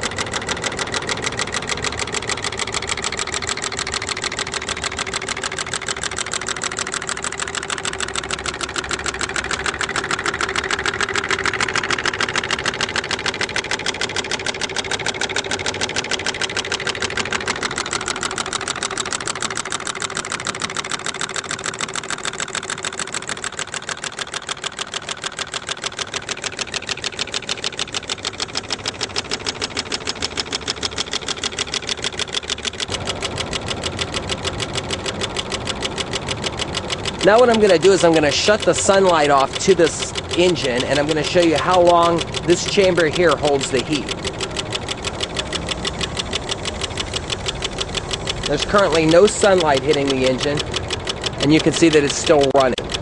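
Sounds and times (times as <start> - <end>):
stirling engine ticking: 0.0 - 53.0.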